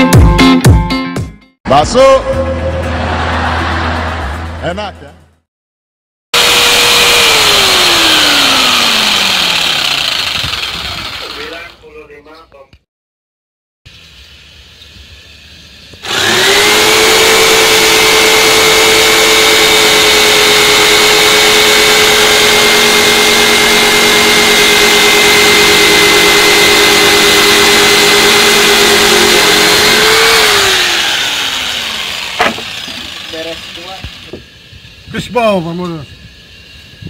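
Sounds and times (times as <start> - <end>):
electric jigsaw sawing wood: 6.4 - 11.8, 16.0 - 34.4.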